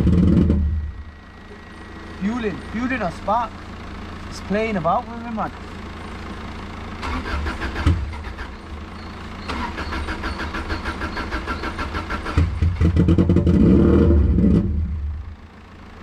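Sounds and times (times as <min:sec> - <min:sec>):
engine running with misfire: 0:00.0 - 0:16.0
engine cranking on starter: 0:06.9 - 0:15.2.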